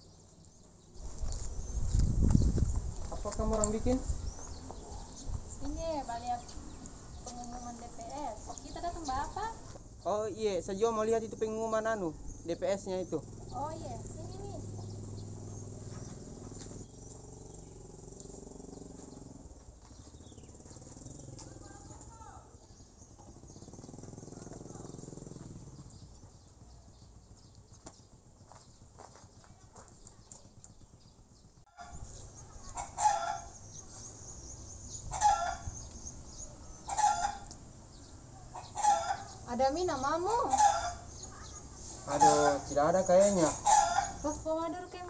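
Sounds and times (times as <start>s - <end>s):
chickens calling: 31.7s - 45.0s.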